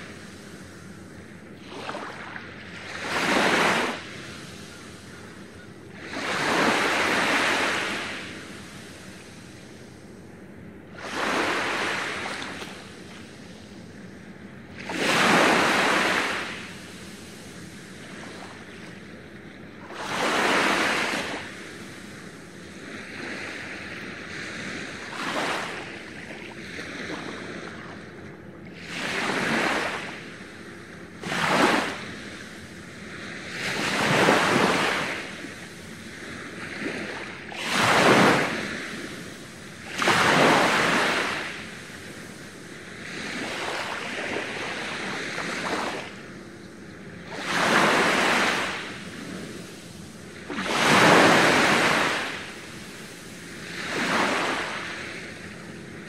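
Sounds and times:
small waves breaking on beach: 0.0s - 10.0s, 10.9s - 56.0s
water lapping: 0.0s - 10.2s.

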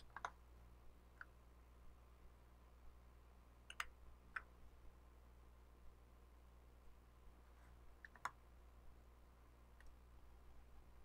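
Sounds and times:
computer mouse clicks: 0.0s - 0.4s, 3.6s - 4.5s, 8.0s - 8.4s
faint steady hum: 0.0s - 11.0s.

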